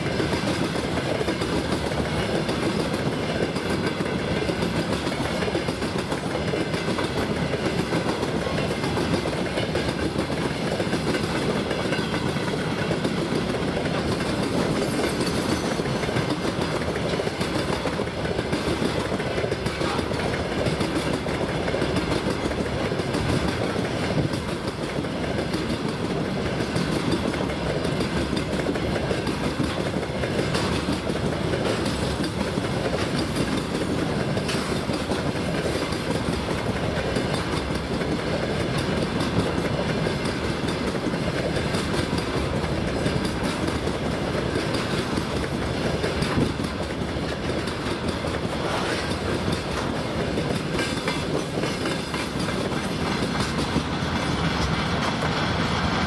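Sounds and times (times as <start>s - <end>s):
steel wheels clattering on rails: 0.0s - 56.0s.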